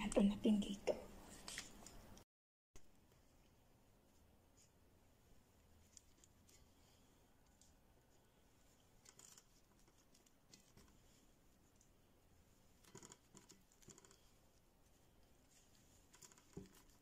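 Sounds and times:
faint rustles and clicks: 0:03.0 - 0:17.0.

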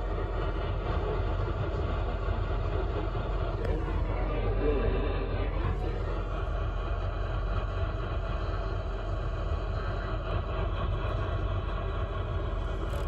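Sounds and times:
car cabin rumble and hiss: 0:03.4 - 0:06.6, 0:12.5 - 0:13.0.

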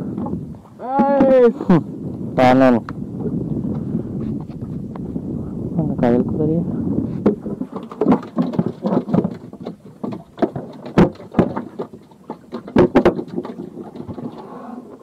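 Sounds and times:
knocks on wooden deck: 0:07.2 - 0:13.5.

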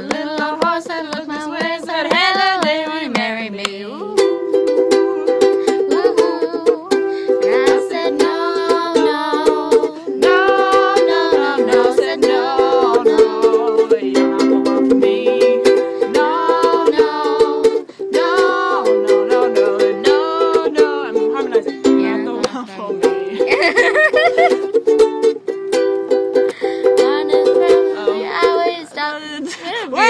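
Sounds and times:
women singing: 0:00.0 - 0:23.7, 0:26.8 - 0:30.0
ukulele strumming: 0:00.0 - 0:30.0.

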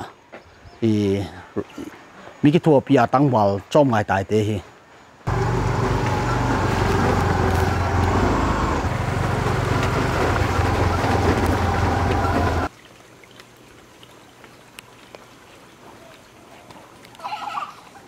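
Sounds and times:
motor scooter engines running: 0:05.3 - 0:12.7.

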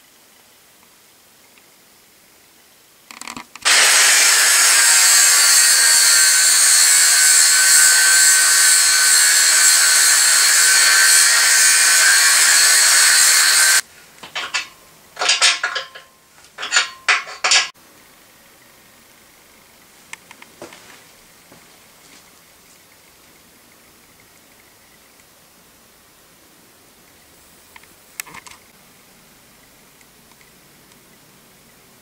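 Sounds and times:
angle grinder grinding steel: 0:03.6 - 0:17.7.

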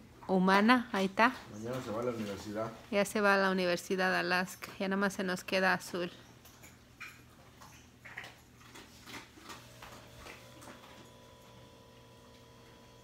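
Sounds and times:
dog eating food off floor: 0:06.3 - 0:12.8.

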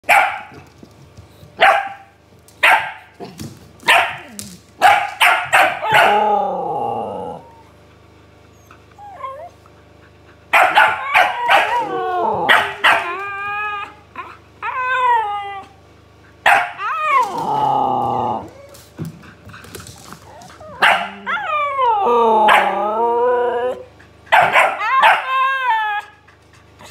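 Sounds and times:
dog barking: 0:00.0 - 0:00.6, 0:01.6 - 0:03.1, 0:03.9 - 0:06.2, 0:10.5 - 0:11.8, 0:12.5 - 0:13.2, 0:16.4 - 0:16.8, 0:20.8 - 0:21.3, 0:24.3 - 0:25.3
husky howling: 0:05.6 - 0:07.8, 0:10.6 - 0:15.8, 0:16.5 - 0:18.8, 0:20.2 - 0:26.2.

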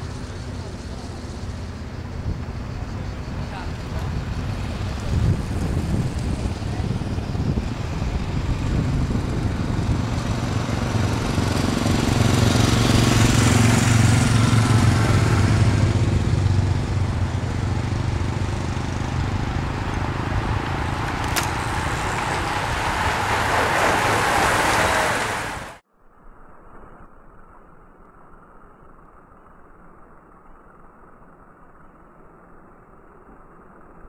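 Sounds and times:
motorcycle engines passing: 0:00.0 - 0:25.8
bicycle tyres and wind rushing: 0:00.0 - 0:34.0.

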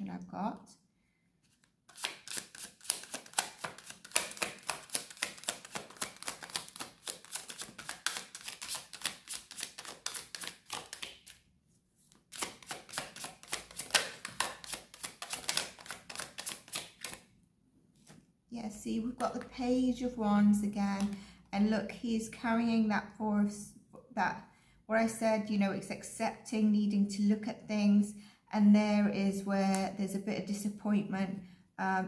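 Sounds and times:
cards being shuffled: 0:01.4 - 0:11.4, 0:12.1 - 0:17.2.

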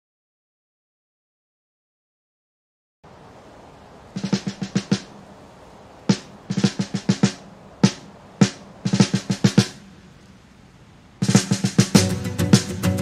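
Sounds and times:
faint steady hiss: 0:03.0 - 0:13.0
drum kit playing: 0:04.2 - 0:05.1, 0:06.1 - 0:09.8, 0:11.2 - 0:13.0.

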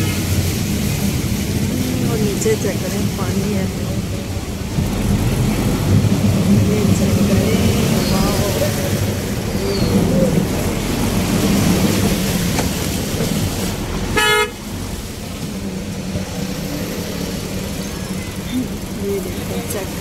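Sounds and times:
rickshaw engine rumbling: 0:00.0 - 0:20.0
vehicle horn honk: 0:14.2 - 0:14.6.

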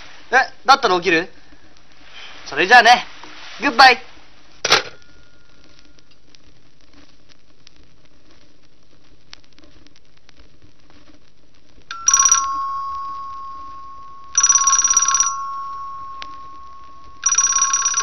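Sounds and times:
telephone ringing: 0:11.9 - 0:18.0.

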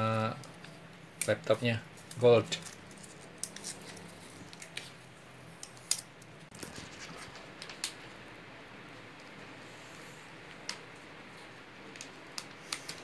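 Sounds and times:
sharp plastic crackles: 0:00.0 - 0:08.3, 0:10.4 - 0:13.0
plastic wrap crinkling: 0:01.2 - 0:08.2.

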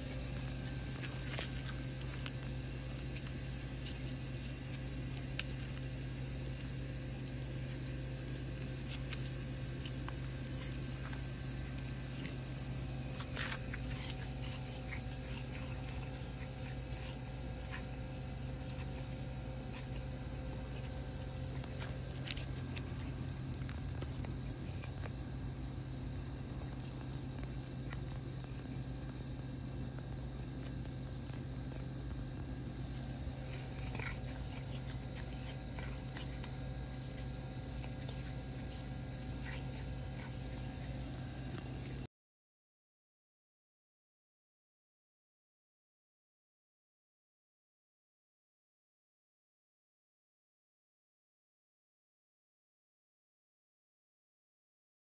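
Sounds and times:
insects chirring: 0:00.0 - 0:42.1.

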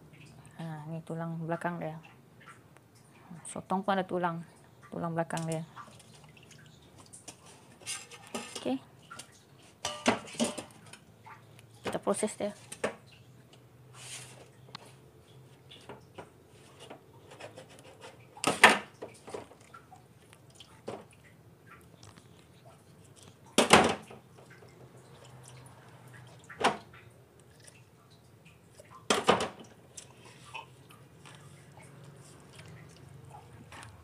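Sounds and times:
utensils clattering on steel sink: 0:07.3 - 0:11.0, 0:16.7 - 0:19.6, 0:29.1 - 0:30.1.

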